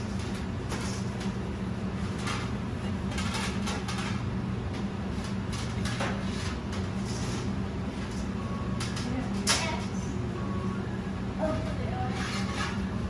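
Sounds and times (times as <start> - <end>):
kitchen equipment hum: 0.0 - 13.0
crumbs scraping in metal pan: 12.0 - 13.0.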